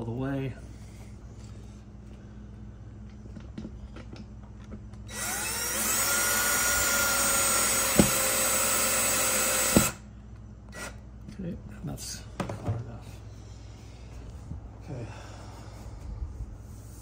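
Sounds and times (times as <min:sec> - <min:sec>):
cordless drill whirring: 0:05.1 - 0:10.0, 0:10.7 - 0:11.0.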